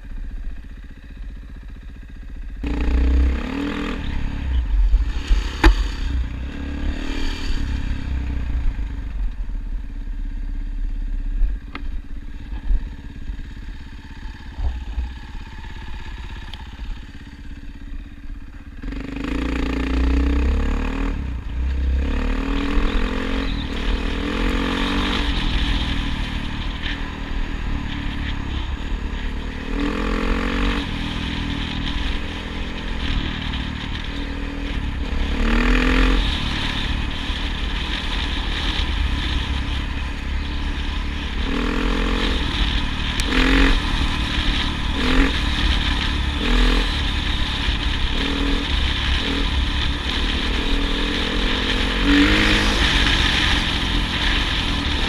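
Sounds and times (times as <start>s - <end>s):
vehicle engine revving: 2.6s - 9.1s, 18.8s - 55.0s.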